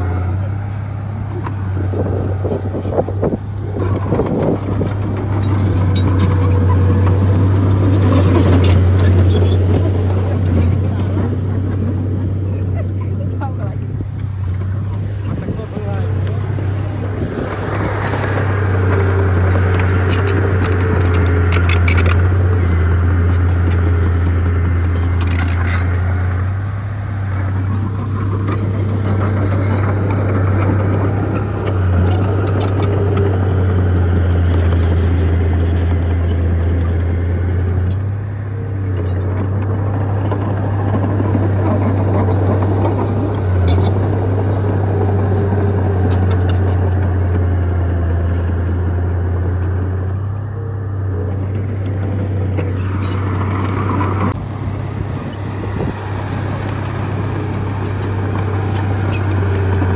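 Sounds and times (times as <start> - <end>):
heavy diesel machinery engine drone: 0.0 - 59.9.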